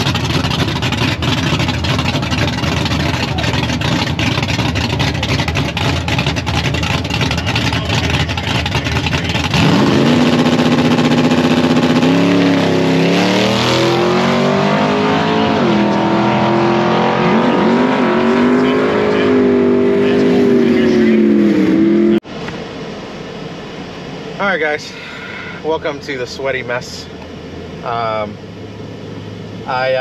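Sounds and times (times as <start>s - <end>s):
drag car engine revving: 0.0s - 22.5s.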